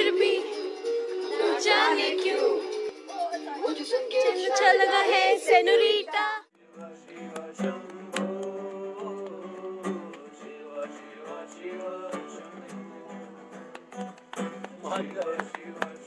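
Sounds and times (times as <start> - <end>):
guitar strumming: 0.0 - 5.3
person singing: 0.0 - 13.8.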